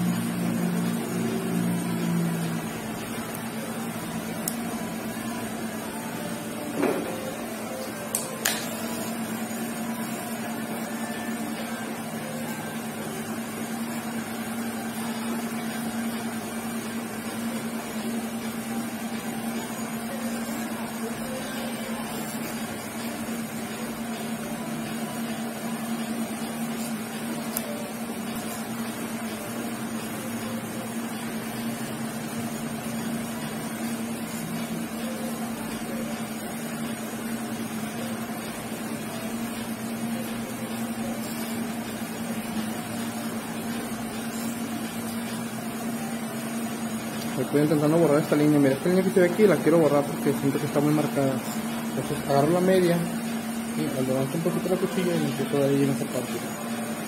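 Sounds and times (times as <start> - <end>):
hair clipper humming: 0.0 - 10.1, 26.8 - 28.7.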